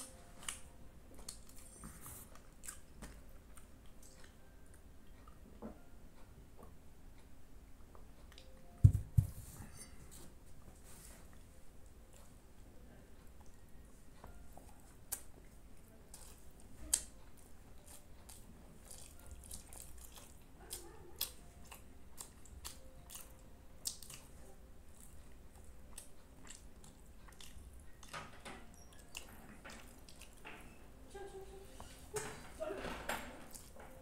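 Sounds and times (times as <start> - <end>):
person chewing food: 0.0 - 5.4, 14.6 - 28.1, 28.8 - 30.5.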